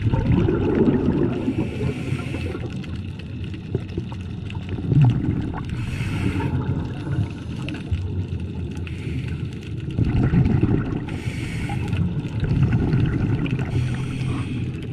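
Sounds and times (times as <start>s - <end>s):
exhaled air bubbling: 0.0s - 14.9s
regulator inhalation hiss: 1.5s - 2.6s, 5.8s - 6.6s, 8.9s - 9.6s, 11.1s - 12.1s, 13.7s - 14.8s.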